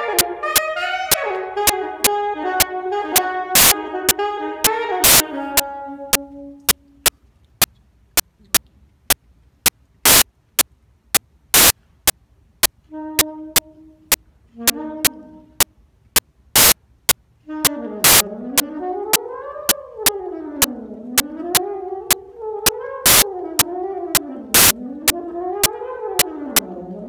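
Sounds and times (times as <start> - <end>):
saxophone playing blues: 0.0 - 7.1, 12.8 - 15.7, 17.4 - 27.0
sharp loud clicks: 3.6 - 3.8, 7.0 - 12.8, 15.6 - 17.2, 18.0 - 18.2, 23.0 - 23.2.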